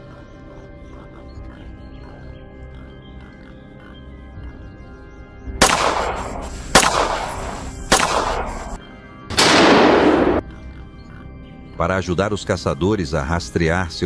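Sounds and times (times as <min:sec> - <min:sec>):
background music: 0:00.0 - 0:14.0
gunshots with echo: 0:05.6 - 0:10.5.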